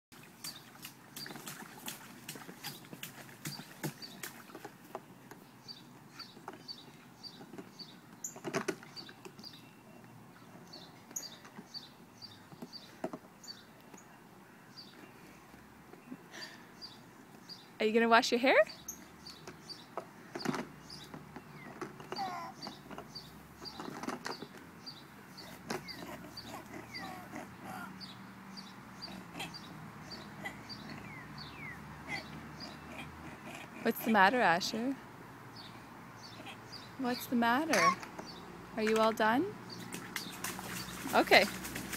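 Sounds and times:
water splashing: 0.1s - 4.9s, 38.8s - 41.9s
bird chirping: 5.4s - 15.3s, 18.7s - 34.9s.

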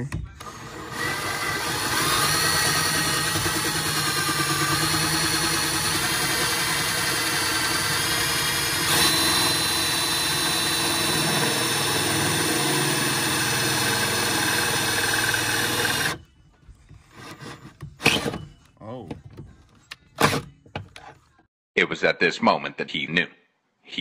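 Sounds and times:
cordless drill drilling through steel: 0.4s - 16.2s.

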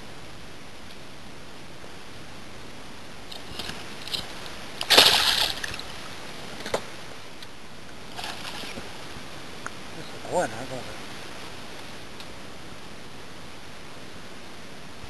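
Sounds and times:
fish splashing at water surface: 3.4s - 6.0s.

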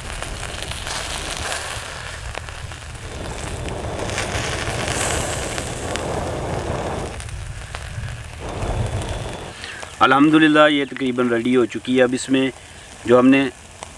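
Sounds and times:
crackles and pops: 0.0s - 13.9s
meat sizzling over charcoal: 0.0s - 13.9s
low rumble: 0.4s - 9.9s.

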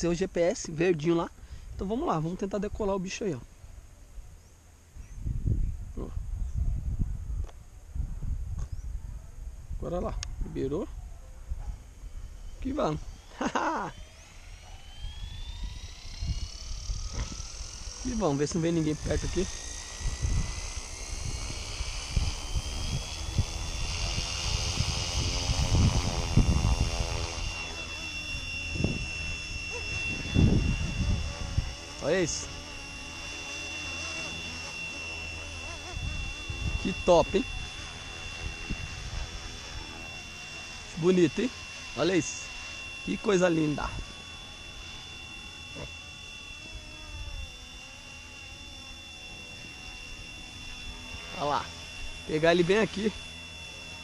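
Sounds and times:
wind gusts on microphone: 5.0s - 13.2s, 15.0s - 27.6s, 28.6s - 32.2s, 35.8s - 39.6s
electric motor whine: 9.6s - 54.0s
rotor buzz: 9.6s - 54.0s.

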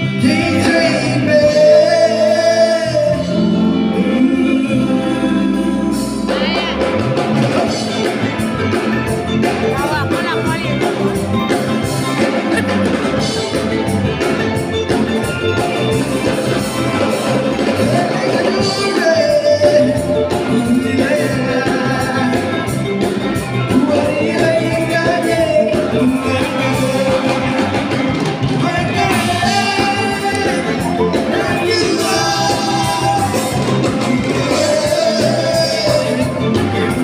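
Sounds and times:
person singing: 0.0s - 8.2s, 17.0s - 37.0s
drum kit beat: 0.0s - 37.0s
electric guitar: 0.0s - 37.0s
keyboard: 0.0s - 37.0s.

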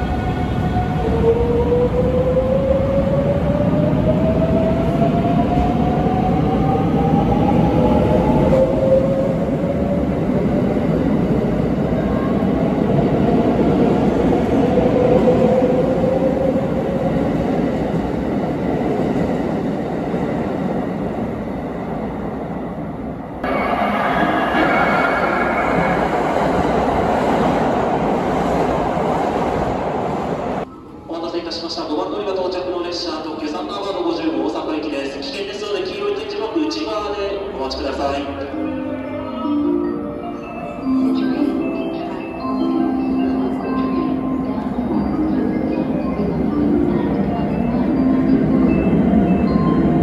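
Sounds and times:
train approaching: 0.0s - 50.0s
electric train pulling away: 23.4s - 31.1s.

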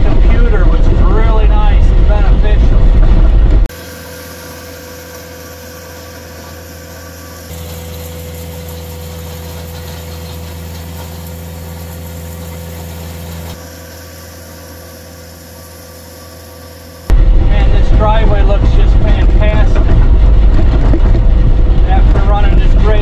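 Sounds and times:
diesel engine running under load: 0.0s - 23.0s
power rake on gravel: 3.8s - 13.6s.

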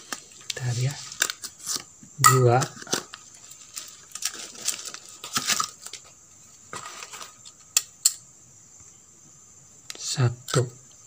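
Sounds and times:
bubble wrap bag crinkling: 2.7s - 6.1s.

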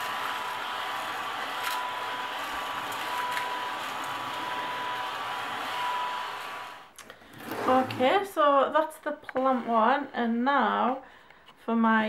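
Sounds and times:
mechanical whirring: 0.0s - 8.1s.

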